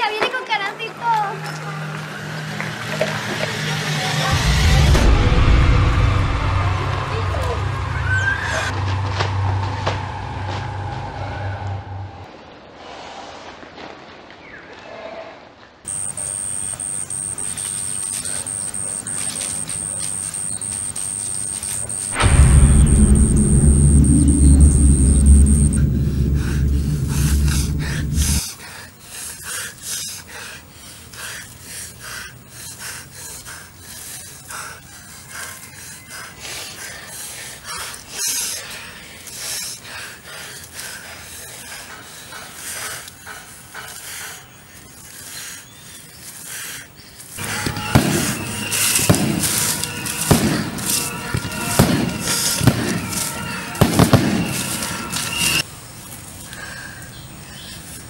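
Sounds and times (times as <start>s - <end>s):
sharp bangs: 21.8s - 28.4s, 47.4s - 55.6s
hands rustling through dry leaves: 48.2s - 53.6s.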